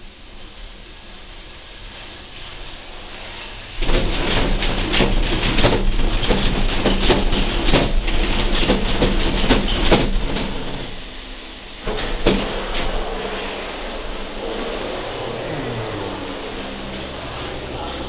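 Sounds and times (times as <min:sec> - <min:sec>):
vehicle interior rush in rain: 0:00.4 - 0:18.0
knocks and rattles: 0:03.8 - 0:11.0, 0:11.8 - 0:13.0.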